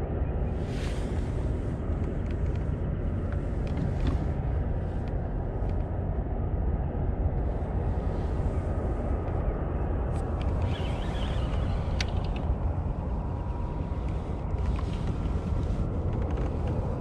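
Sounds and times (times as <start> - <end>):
wind rumbling on microphone: 0.0 - 17.0
faint clicks: 10.3 - 12.5.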